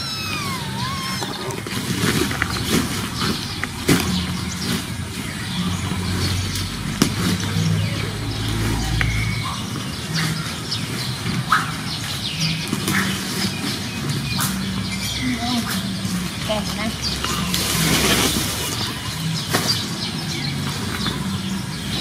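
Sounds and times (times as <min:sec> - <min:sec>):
birds chirping: 0:00.0 - 0:22.0.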